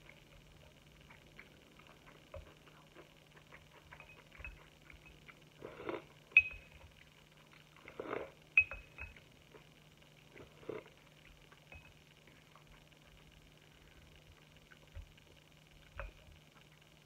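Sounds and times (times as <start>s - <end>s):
chewing clicks: 0.0s - 17.0s
utensil clinking against dish: 8.6s - 9.2s.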